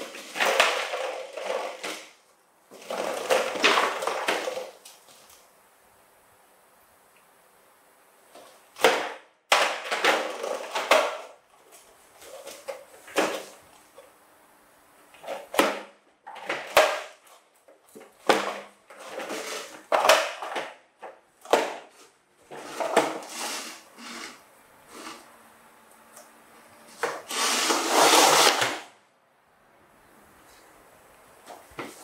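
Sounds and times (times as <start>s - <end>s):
plastic toy truck clattering on floor: 0.0s - 5.1s, 8.4s - 13.6s, 15.1s - 24.4s, 27.0s - 28.9s.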